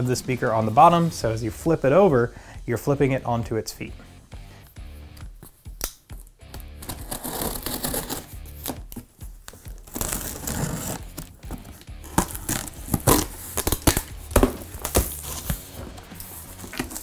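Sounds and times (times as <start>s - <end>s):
blade slitting packing tape: 6.6s - 17.0s
cardboard crinkling and scraping: 6.8s - 13.8s, 14.4s - 17.0s.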